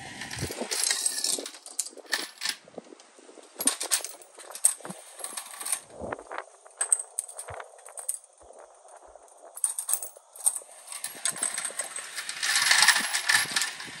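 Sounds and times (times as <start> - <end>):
metal parts clicking: 0.2 - 2.6, 3.6 - 5.9, 6.8 - 14.0
brass cartridge cases clinking: 3.6 - 5.9, 9.4 - 14.0
reloading press rattling: 9.6 - 14.0.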